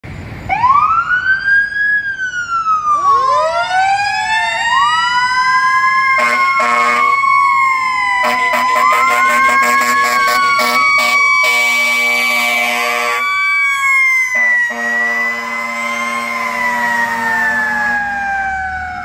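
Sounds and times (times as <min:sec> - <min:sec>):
fire engine sirens wailing: 0:00.0 - 0:19.0
horn blasts: 0:06.2 - 0:07.1, 0:08.2 - 0:13.3, 0:14.3 - 0:17.5.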